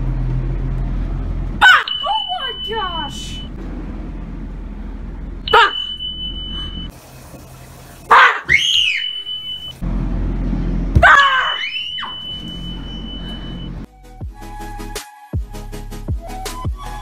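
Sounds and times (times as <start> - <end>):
children shrieking and screaming: 8.1 - 9.5, 11.0 - 12.5.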